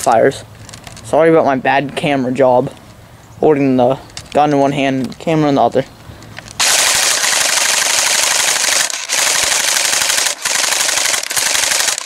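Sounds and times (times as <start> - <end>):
airsoft gun firing full auto: 6.6 - 12.0.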